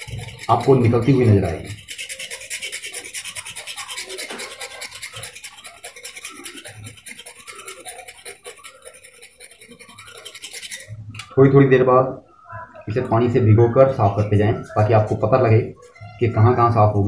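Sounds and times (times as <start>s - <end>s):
knife blade scraping scale: 0.0s - 11.3s.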